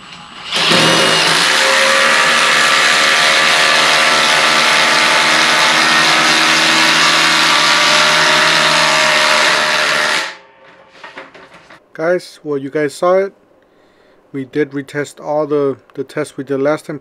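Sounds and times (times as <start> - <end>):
impact driver hammering: 0.5 - 1.5.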